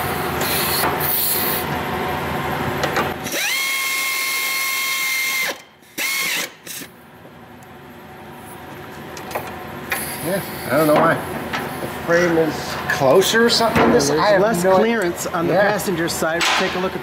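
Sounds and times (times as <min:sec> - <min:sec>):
air ratchet rattling and whining: 0:03.2 - 0:06.9.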